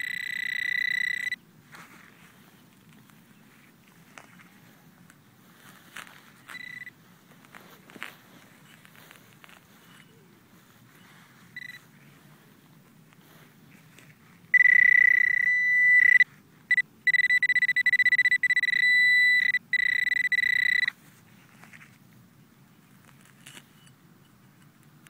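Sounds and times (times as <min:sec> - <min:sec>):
metal detector tone: 0:00.0 - 0:01.4, 0:06.3 - 0:07.0, 0:08.6 - 0:10.2, 0:10.9 - 0:11.9, 0:14.5 - 0:21.0.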